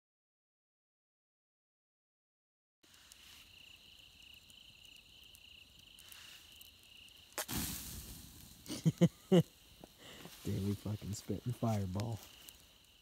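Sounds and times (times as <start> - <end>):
crickets chirping: 2.8 - 13.0.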